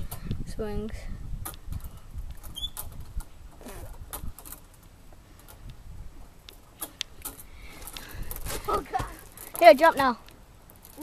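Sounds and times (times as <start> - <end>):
wooden swing set creaking: 1.3 - 11.0
swing hangers clicking: 1.4 - 8.6.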